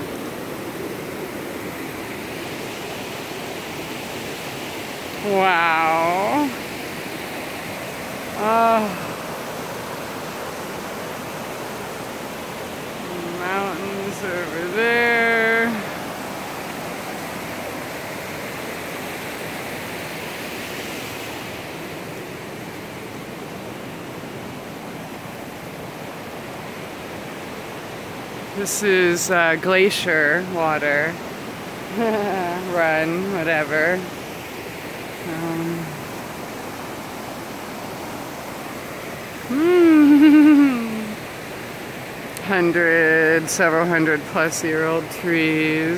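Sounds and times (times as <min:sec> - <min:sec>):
river rushing over boulders: 0:00.0 - 0:45.9
person humming: 0:08.4 - 0:09.1, 0:31.9 - 0:32.8, 0:35.3 - 0:36.0, 0:39.5 - 0:41.2.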